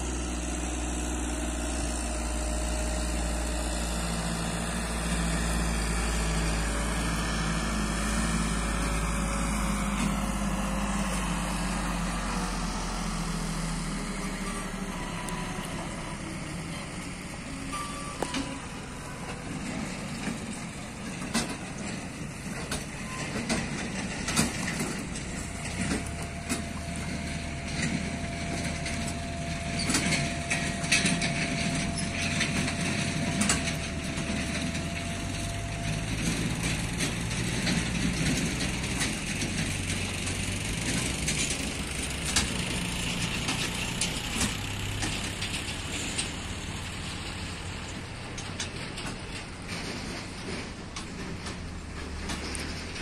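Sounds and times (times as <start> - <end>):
diesel tractor engine running: 0.0 - 53.0.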